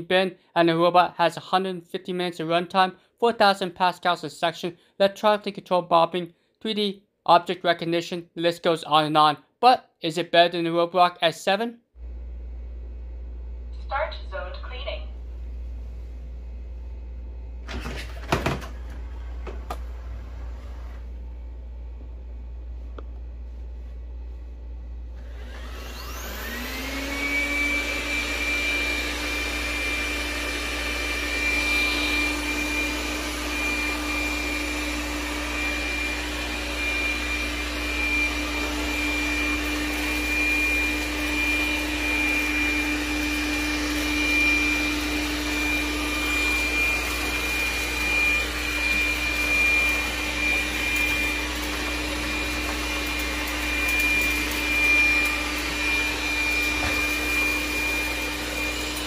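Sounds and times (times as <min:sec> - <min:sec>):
robot vacuum fan whining: 0:25.1 - 0:59.0.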